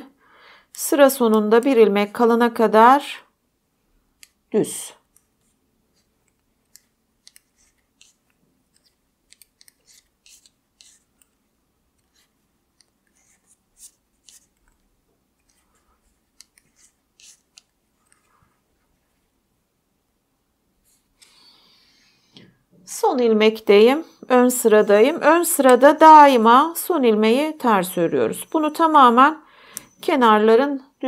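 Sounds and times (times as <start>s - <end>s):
knitting needles clicking: 6.2s - 18.4s.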